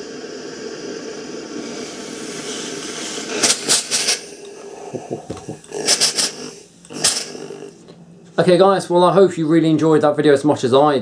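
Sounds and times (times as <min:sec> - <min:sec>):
steam shots hissing: 0:00.0 - 0:07.8
steam iron buzzing: 0:00.0 - 0:07.9.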